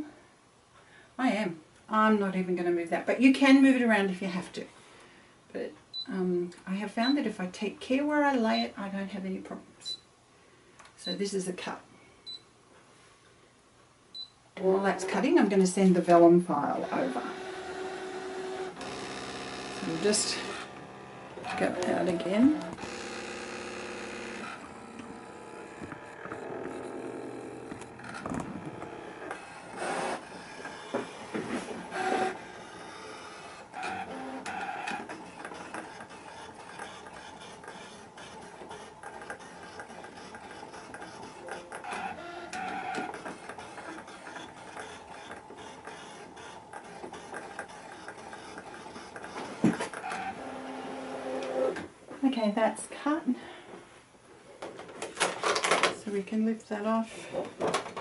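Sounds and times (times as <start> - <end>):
cutting machine motors whining: 14.6 - 15.6, 16.7 - 51.8.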